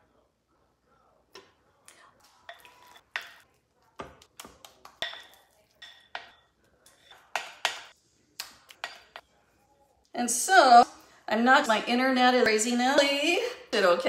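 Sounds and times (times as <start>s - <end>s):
spatula knocking glass bowl: 5.0s - 6.4s.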